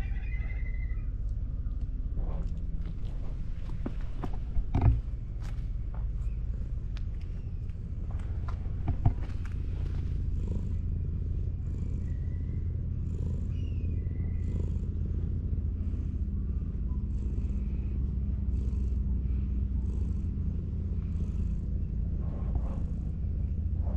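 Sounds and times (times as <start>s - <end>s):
cat purring: 0.0s - 23.9s.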